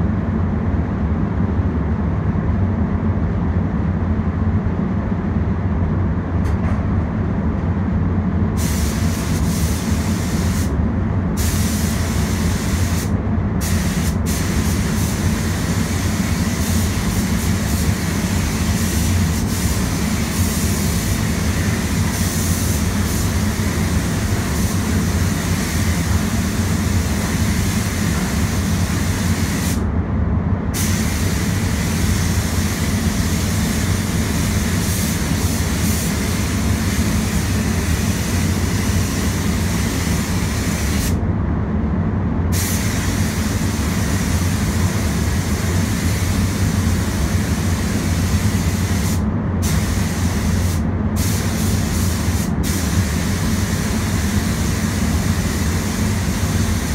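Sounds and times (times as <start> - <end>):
air fans rumbling: 0.0 - 56.9
spray gun hissing: 8.6 - 10.7, 11.4 - 29.8, 30.8 - 41.2, 42.5 - 56.9.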